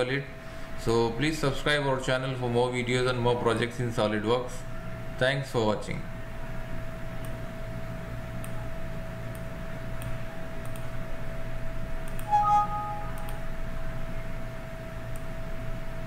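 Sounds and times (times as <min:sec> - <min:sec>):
steady background hum: 0:00.0 - 0:16.0
ringing two-note clink: 0:12.3 - 0:13.4.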